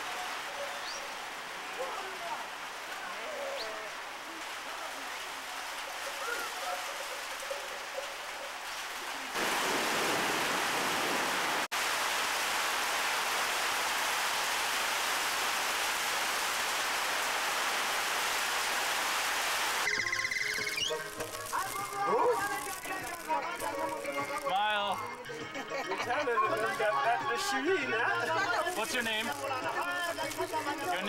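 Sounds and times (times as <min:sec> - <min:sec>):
rain hissing: 0:00.0 - 0:25.2, 0:26.2 - 0:31.0
faint distant calls: 0:19.8 - 0:22.1.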